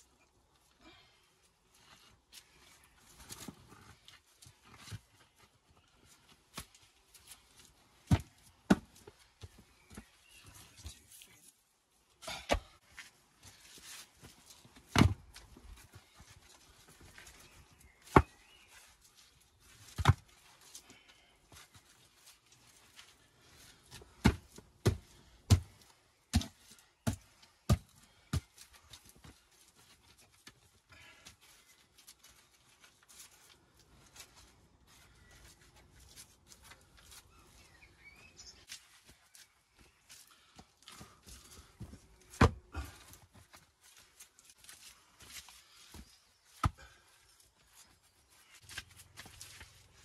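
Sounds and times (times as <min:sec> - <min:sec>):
work boot stamping on earth: 0:24.0 - 0:28.5.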